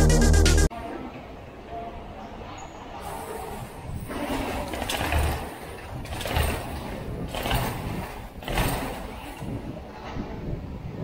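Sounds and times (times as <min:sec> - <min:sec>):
tyres rolling on tiles: 0:03.1 - 0:10.3
wind on microphone: 0:05.8 - 0:11.0.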